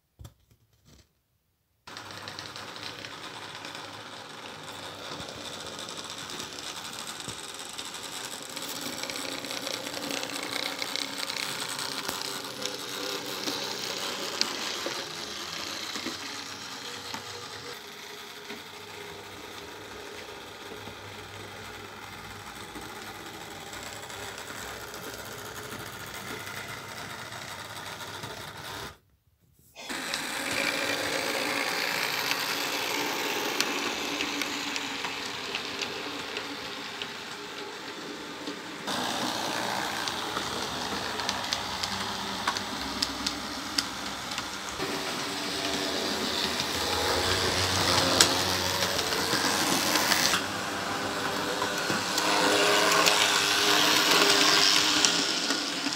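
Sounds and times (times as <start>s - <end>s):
wheels clicking on track: 1.9s - 28.9s, 29.9s - 55.9s
small electric motor whirring: 1.9s - 29.0s, 29.8s - 55.9s.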